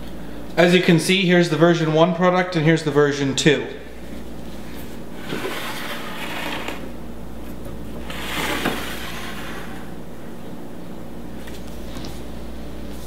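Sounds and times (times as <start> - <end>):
steady low hum: 0.0 - 13.0
metal cases scraping on stone: 5.2 - 6.9.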